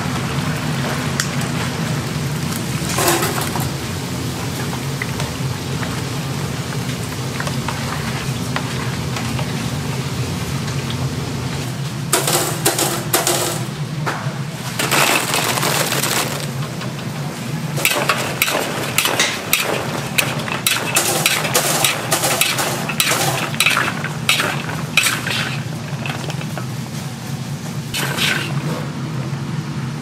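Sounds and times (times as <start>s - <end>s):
steady low hum: 1.1s - 30.0s
metal utensils scraping a pot: 17.8s - 26.6s, 28.0s - 28.8s.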